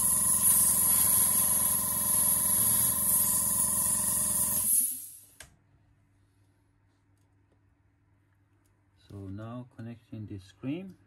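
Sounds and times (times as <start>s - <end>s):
compressed air hissing: 0.0s - 5.4s.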